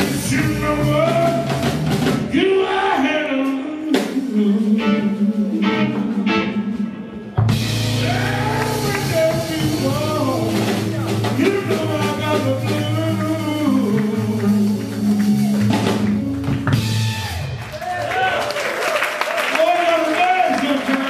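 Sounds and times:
man singing: 0.0 - 7.2, 7.9 - 15.8
blues band playing: 0.0 - 18.5.

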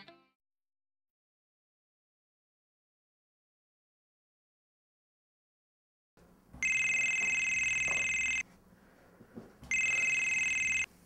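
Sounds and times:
telephone ringing: 6.6 - 8.5, 9.7 - 10.9.

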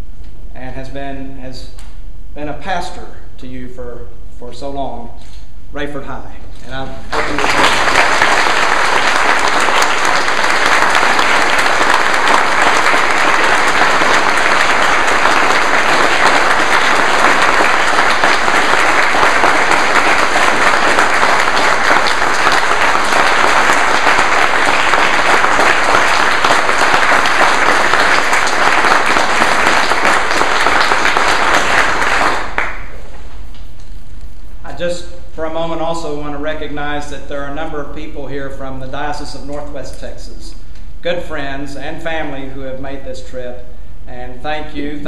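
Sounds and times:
crowd applauding: 7.1 - 33.2.

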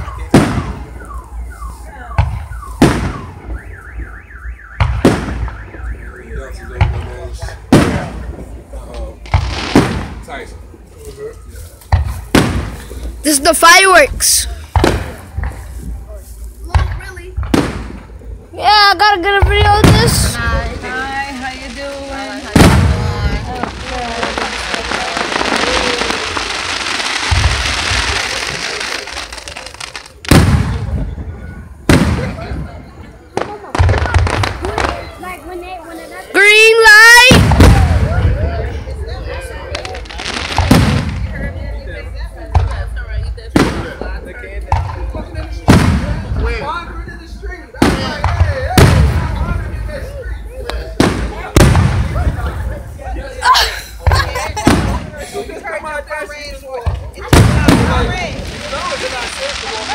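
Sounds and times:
car alarm chirps and warble: 0.0 - 7.1
fireworks booming overhead: 0.0 - 59.9.

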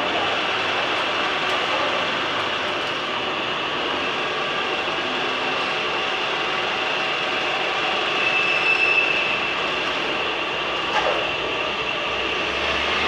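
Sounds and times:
shaper machine running: 0.0 - 13.0.

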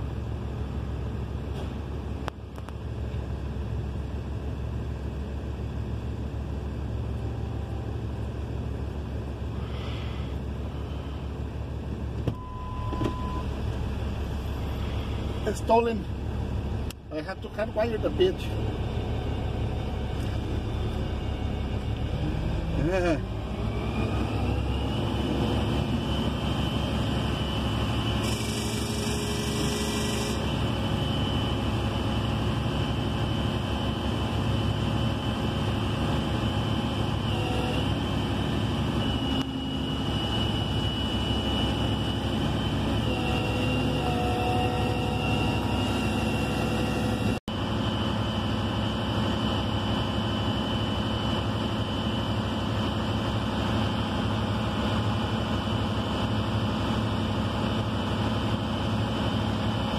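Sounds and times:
truck engine running: 0.0 - 59.9
faint high whine: 38.6 - 52.9.

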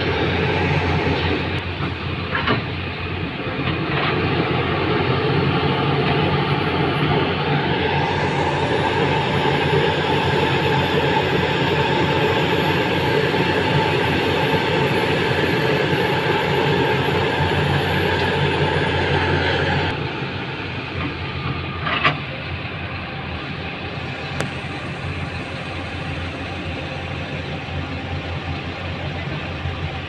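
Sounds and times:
excavator engine and hydraulics: 0.0 - 30.0
faint high whine: 5.8 - 21.8, 22.6 - 30.0.

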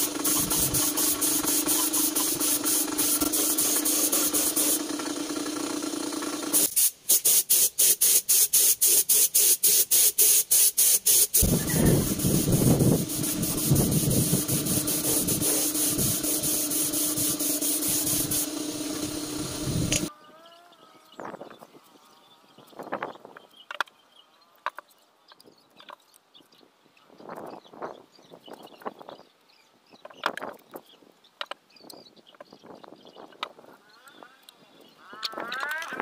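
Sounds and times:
paint spray gun hissing: 0.0 - 20.1
steady hum: 11.4 - 20.1.

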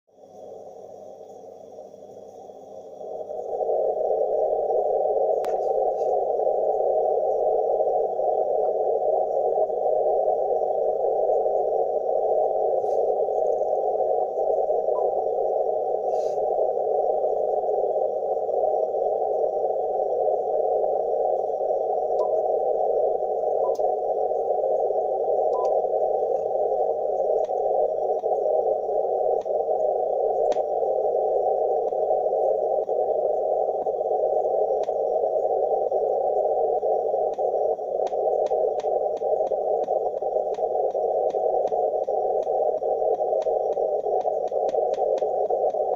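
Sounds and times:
radio receiver hiss: 0.2 - 45.9
faint clicks: 37.2 - 45.9.

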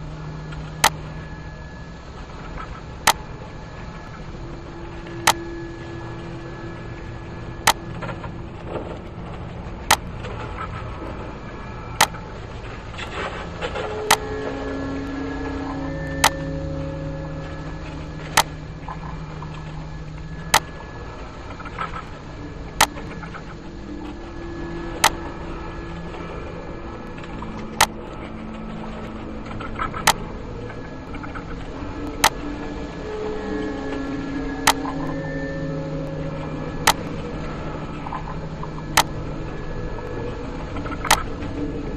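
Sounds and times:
steady background hum: 0.0 - 41.9.

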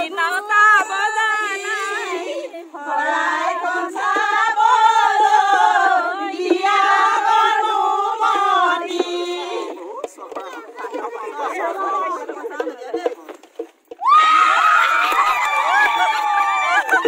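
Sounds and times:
women singing unaccompanied: 0.0 - 13.0.

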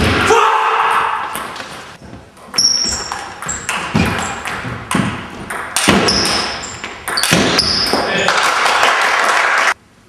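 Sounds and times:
table tennis ball pinging: 2.4 - 8.1.

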